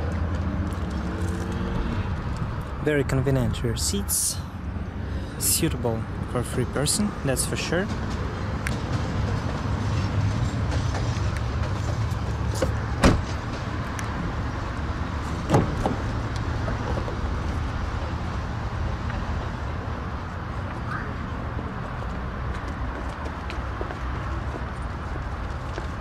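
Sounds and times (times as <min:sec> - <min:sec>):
car door knocks: 0:13.0 - 0:13.4, 0:15.5 - 0:16.0.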